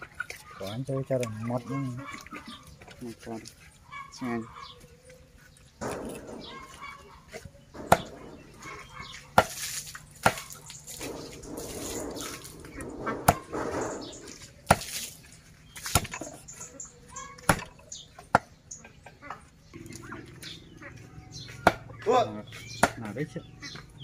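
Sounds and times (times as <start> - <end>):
cleaver chopping on wooden block: 7.8 - 8.3, 10.2 - 10.5, 13.2 - 13.5, 15.8 - 16.3, 17.4 - 18.5, 21.6 - 22.0, 22.7 - 23.1.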